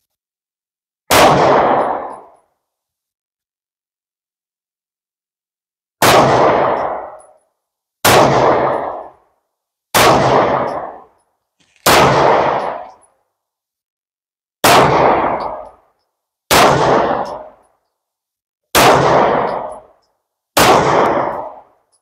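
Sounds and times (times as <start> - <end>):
pistol shots: 1.1 - 2.4, 6.0 - 7.3, 8.0 - 9.2, 9.9 - 13.1, 14.6 - 15.8, 16.5 - 17.6, 18.7 - 19.9, 20.6 - 21.8.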